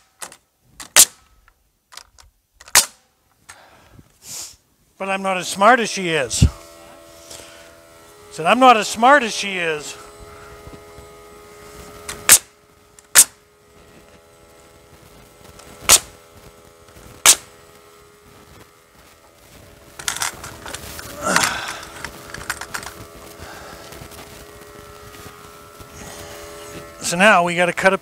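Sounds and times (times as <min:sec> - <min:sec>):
nail gun firing: 0:00.0 - 0:01.3, 0:02.6 - 0:03.1, 0:12.1 - 0:13.4, 0:15.8 - 0:16.2, 0:17.2 - 0:17.5
faint steady hum: 0:00.0 - 0:28.0.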